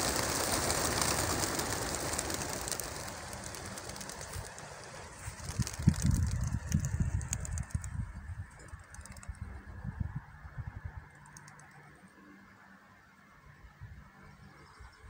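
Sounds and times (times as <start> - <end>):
pigeon wings clattering: 0.0 - 9.4.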